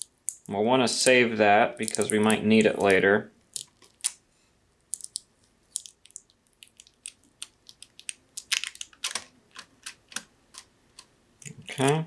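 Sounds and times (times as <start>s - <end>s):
tape peeling crackles: 4.9s - 10.2s.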